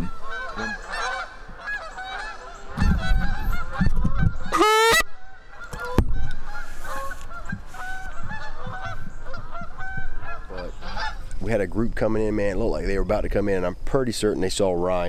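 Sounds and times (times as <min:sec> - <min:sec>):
geese honking: 0:00.0 - 0:11.3.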